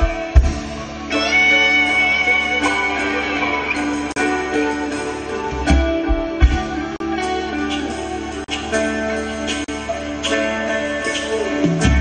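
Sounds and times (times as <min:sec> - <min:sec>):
electric guitar lead: 0:00.0 - 0:12.0
live band music: 0:00.0 - 0:12.0.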